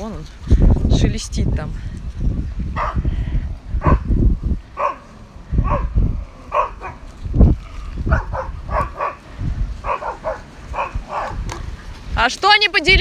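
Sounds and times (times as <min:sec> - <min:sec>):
dogs barking: 0:02.7 - 0:03.1, 0:03.8 - 0:07.1, 0:08.0 - 0:11.7.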